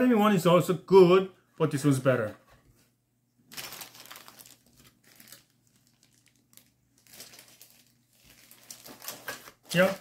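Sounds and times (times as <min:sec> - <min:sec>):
plastic bag crinkling: 0:03.5 - 0:10.0.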